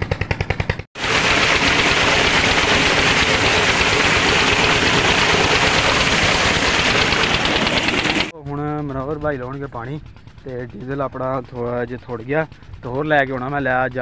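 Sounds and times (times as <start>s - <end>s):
water gushing into tank: 1.0s - 8.3s.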